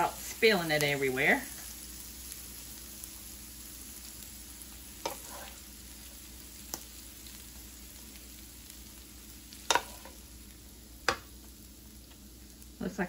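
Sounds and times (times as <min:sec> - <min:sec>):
wooden spoon scraping skillet: 0:05.0 - 0:05.7, 0:09.6 - 0:10.2.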